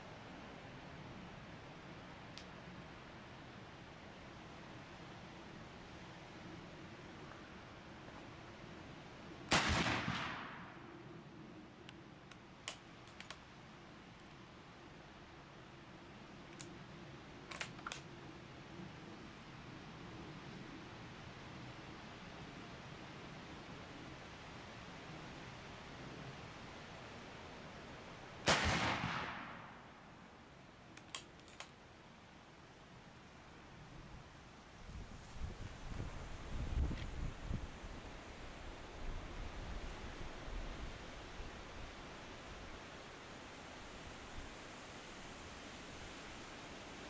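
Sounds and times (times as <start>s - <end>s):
rifle shot: 9.5s - 10.9s, 28.4s - 29.9s
light metallic clicks: 11.8s - 13.4s, 30.9s - 31.8s.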